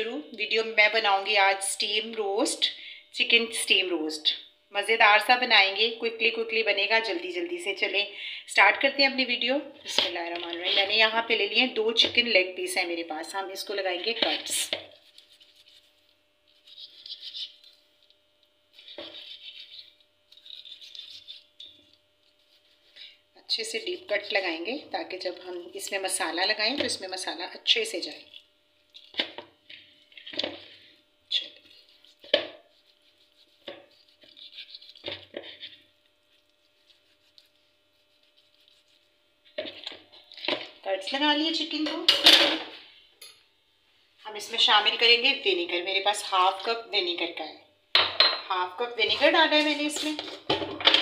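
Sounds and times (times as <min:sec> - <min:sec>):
knife slicing raw chicken: 0:32.0 - 0:35.7.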